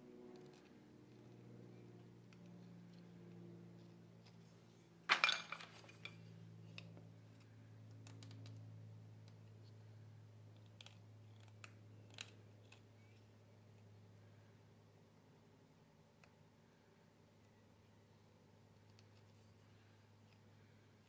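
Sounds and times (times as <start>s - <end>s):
blade clicking and scraping: 10.5s - 13.1s.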